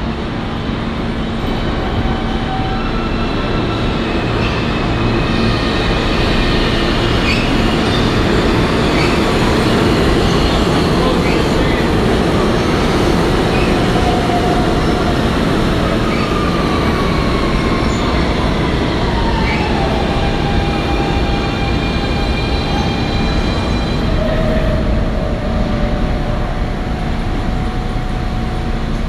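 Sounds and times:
train wheels on rails: 0.0s - 29.0s
wheel squeals: 7.2s - 8.2s.

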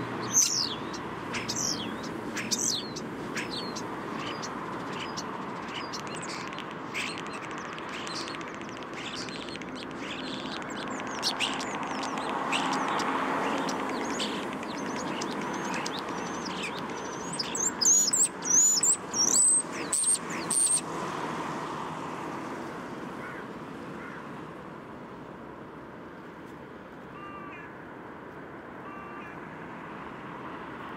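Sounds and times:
city traffic noise: 0.0s - 30.9s
starling singing: 0.1s - 20.8s.

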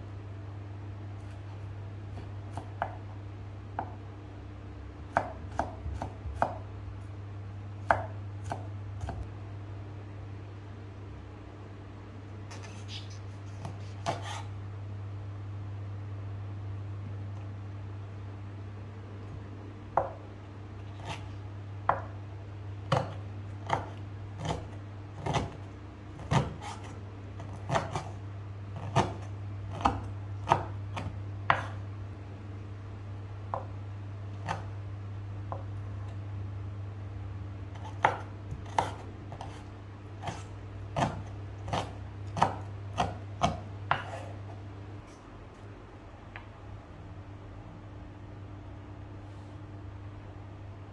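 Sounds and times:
steady low hum: 0.0s - 50.9s
knife chopping on wooden board: 5.1s - 6.6s, 7.8s - 9.2s, 12.5s - 14.5s, 20.0s - 20.2s, 20.9s - 21.3s, 21.9s - 22.2s, 22.9s - 25.6s, 26.2s - 28.2s, 28.8s - 31.8s, 33.5s - 33.8s, 34.4s - 34.8s, 37.7s - 44.5s.

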